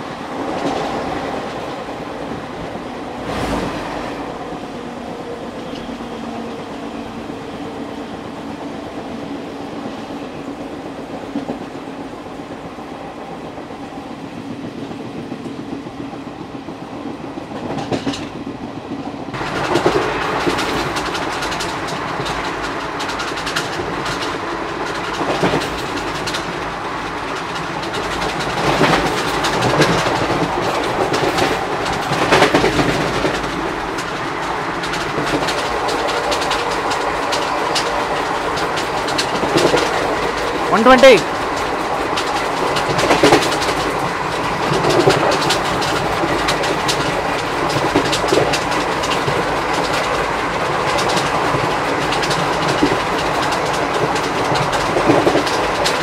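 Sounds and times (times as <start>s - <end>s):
train coach rumble: 0.0s - 56.0s
wheels clacking over rail joints: 19.3s - 56.0s.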